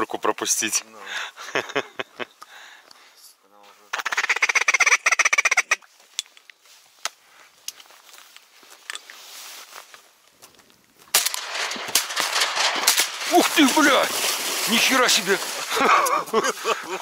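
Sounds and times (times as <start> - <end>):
loud rustling: 11.2 - 17.0.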